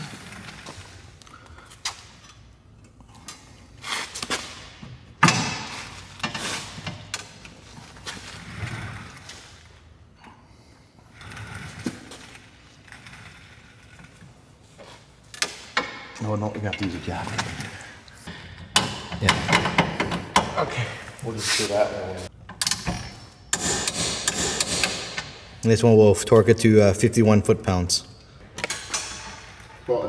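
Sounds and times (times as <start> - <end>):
metal clicks and knocks: 18.6 - 20.6.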